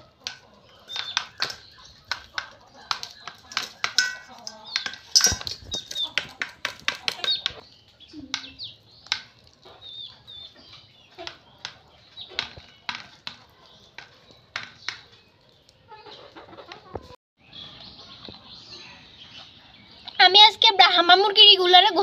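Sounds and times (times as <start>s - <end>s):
beaks tapping on metal bowl: 0.0s - 15.5s
chickens clucking: 0.0s - 20.2s
chicken chirps: 15.0s - 20.1s.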